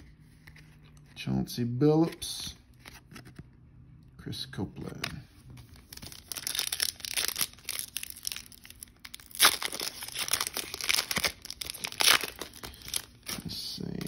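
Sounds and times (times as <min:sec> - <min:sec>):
foil wrapper crinkling and tearing: 0:05.8 - 0:14.0.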